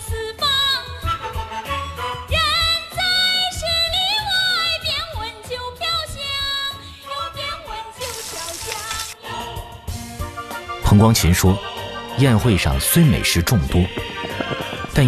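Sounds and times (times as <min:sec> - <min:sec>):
woman singing folk melody: 0:00.0 - 0:01.0, 0:02.3 - 0:09.5
food sizzling in wok: 0:08.0 - 0:09.2.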